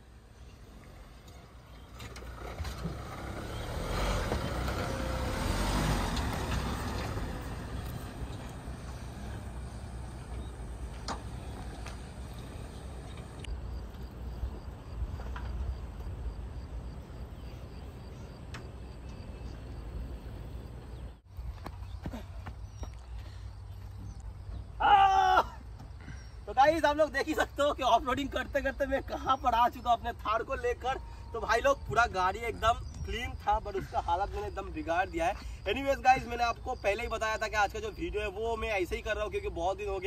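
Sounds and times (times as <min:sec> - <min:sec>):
vehicle driving over rubble: 0:00.9 - 0:13.4.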